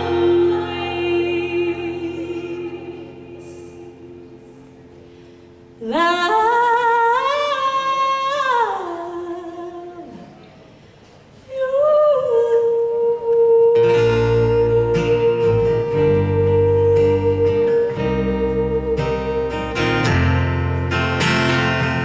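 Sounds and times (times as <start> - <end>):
women singing held notes: 0.0 - 4.8
acoustic guitar strumming: 0.0 - 8.2, 13.8 - 22.0.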